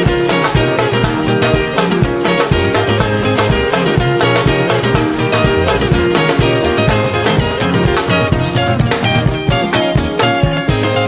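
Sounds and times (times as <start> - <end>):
guitar lines: 0.0 - 11.0
loud dance music with beat: 5.2 - 8.1.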